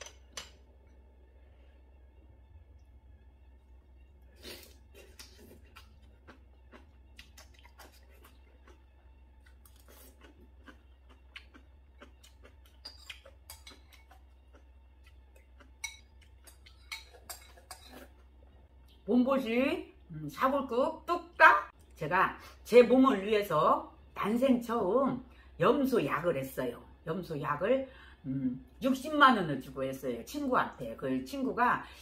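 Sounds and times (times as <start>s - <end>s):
steady low hum: 0.0s - 32.0s
chewing and slurping: 4.3s - 19.0s.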